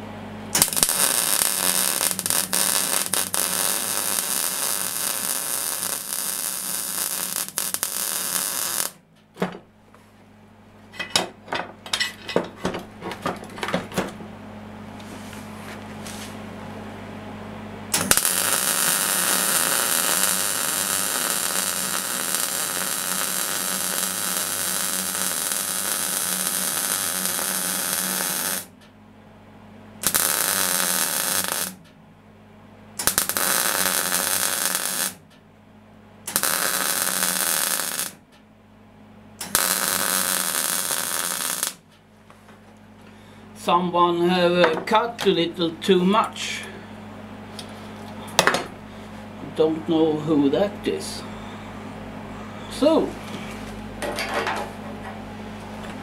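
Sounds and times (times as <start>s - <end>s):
welding arc crackling and hissing: 0.5s - 9.0s, 17.9s - 28.7s, 30.0s - 31.8s, 33.0s - 35.2s, 36.3s - 38.2s, 39.4s - 41.8s.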